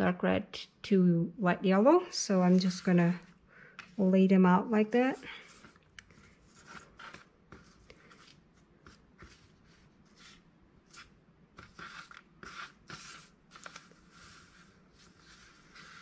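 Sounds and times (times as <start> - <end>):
paper coils scuffing on table: 4.9 - 16.0.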